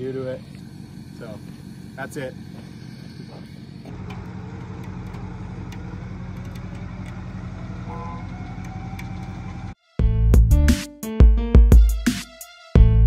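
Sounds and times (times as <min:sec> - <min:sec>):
vehicle engine idling: 0:00.0 - 0:09.8.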